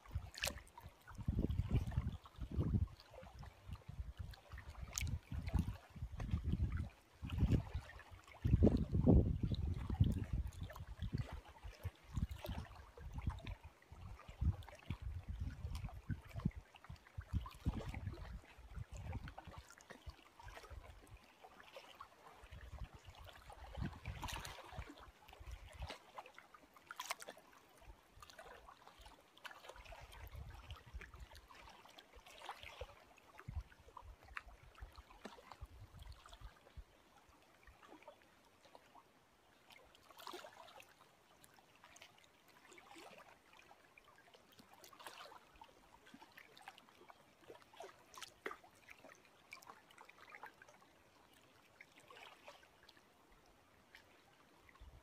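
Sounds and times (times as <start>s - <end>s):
wind rumble on microphone: 0.0s - 19.7s, 22.5s - 26.0s, 29.9s - 31.3s, 33.4s - 35.0s, 35.6s - 36.8s
lake waves lapping: 0.0s - 55.0s.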